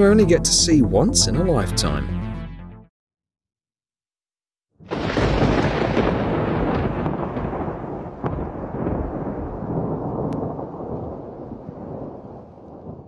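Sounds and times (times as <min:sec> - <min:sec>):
sharp thunder cracks: 0:04.8 - 0:13.0
thunder clap and rumble: 0:04.8 - 0:13.0.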